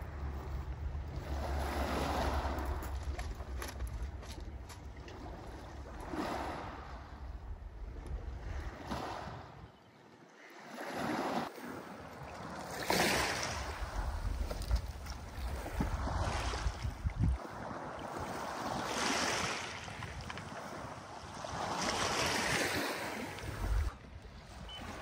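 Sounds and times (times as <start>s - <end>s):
strong wind gusts: 0.0s - 9.8s, 11.2s - 25.0s
wind buffeting microphone: 0.0s - 9.9s, 12.0s - 25.0s.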